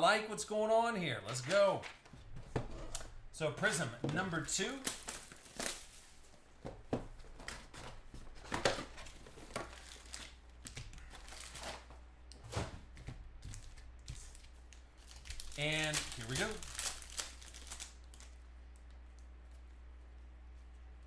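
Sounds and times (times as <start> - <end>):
foil card packs rustling: 1.2 - 18.4
plastic shrink wrap crinkling and tearing: 4.3 - 6.3, 8.8 - 11.9, 13.6 - 18.9.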